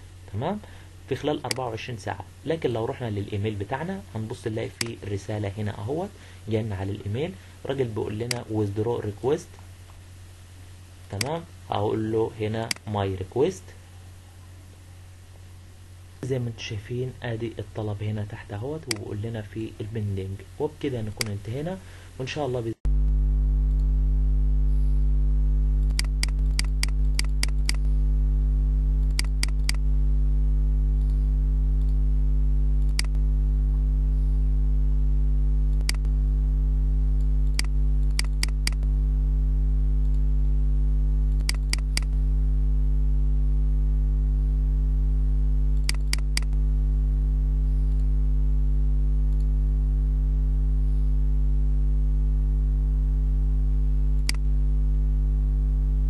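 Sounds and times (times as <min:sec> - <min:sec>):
low electrical hum: 0:00.0 - 0:56.0
computer mouse clicks: 0:18.8 - 0:19.1, 0:25.8 - 0:27.9, 0:29.0 - 0:29.8, 0:32.8 - 0:33.2, 0:35.7 - 0:36.1, 0:37.4 - 0:38.9, 0:41.3 - 0:42.2, 0:45.8 - 0:46.6, 0:54.2 - 0:54.4.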